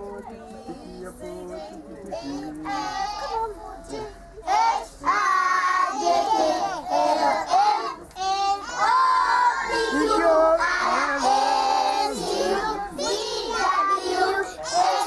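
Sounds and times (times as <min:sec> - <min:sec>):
children singing together: 0:00.6 - 0:15.0.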